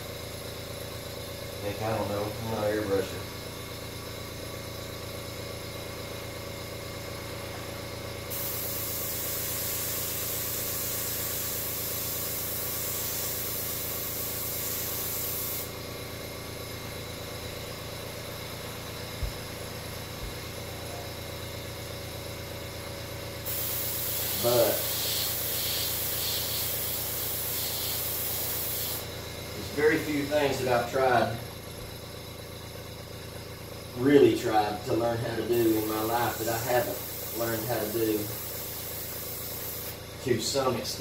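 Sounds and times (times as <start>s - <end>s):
air compressor humming: 0.0s - 41.0s
airbrush hissing: 8.3s - 15.8s, 23.4s - 31.1s, 35.4s - 40.0s.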